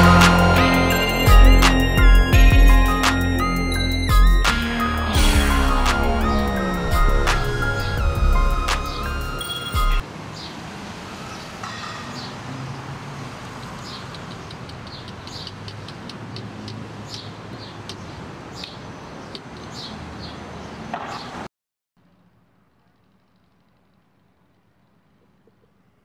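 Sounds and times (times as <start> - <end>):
music: 0.0 - 10.0
car road and traffic noise: 0.0 - 21.5.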